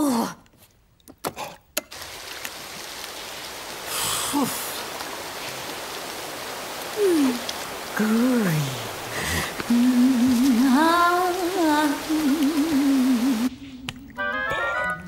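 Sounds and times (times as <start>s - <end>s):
shower spraying water: 1.9s - 13.8s.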